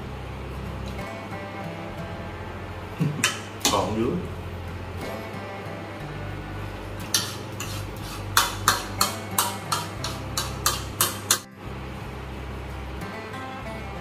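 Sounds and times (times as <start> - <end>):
cutlery clinking and scraping plate: 7.0 - 11.5.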